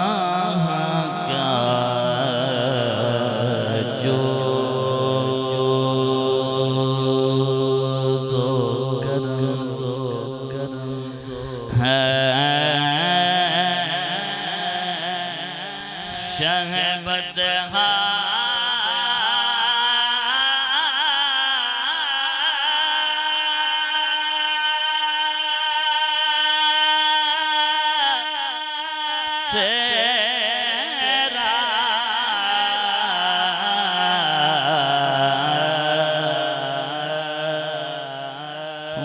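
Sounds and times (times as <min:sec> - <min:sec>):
man singing into a microphone: 0:00.0 - 0:39.0
singer breathing: 0:10.8 - 0:11.8.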